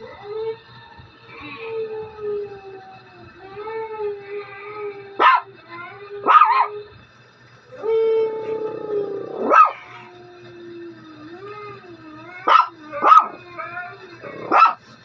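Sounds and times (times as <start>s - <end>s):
husky howling: 0.0s - 7.0s, 7.7s - 15.0s
dog yelping: 5.2s - 5.6s, 6.2s - 6.8s, 8.4s - 10.2s, 12.3s - 14.8s.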